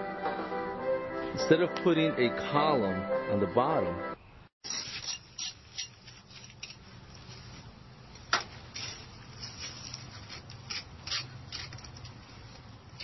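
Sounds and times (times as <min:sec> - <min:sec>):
hand tool scraping stone: 0:04.6 - 0:06.8, 0:08.8 - 0:12.6.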